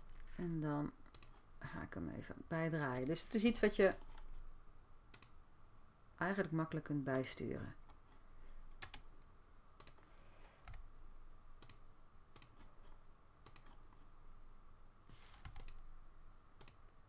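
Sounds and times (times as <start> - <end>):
faint steady hum: 0.0 - 17.0
mouse and keyboard clicks: 11.6 - 13.8, 15.2 - 15.8.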